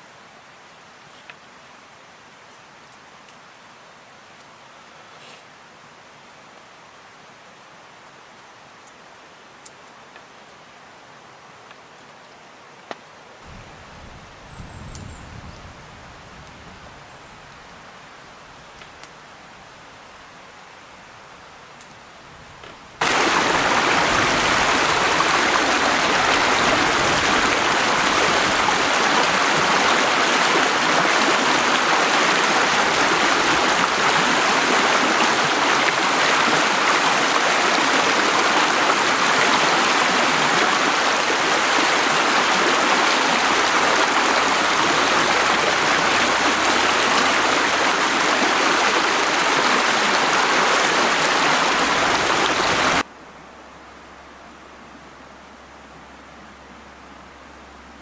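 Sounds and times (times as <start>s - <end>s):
stream rushing over rocks: 22.7s - 53.1s.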